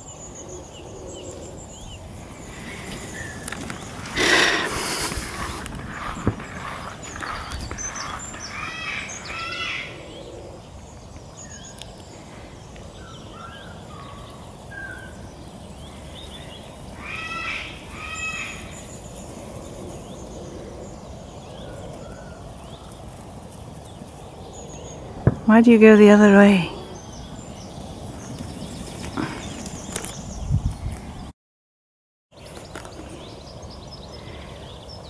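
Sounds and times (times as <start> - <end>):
bird chirps: 0.0 - 10.4.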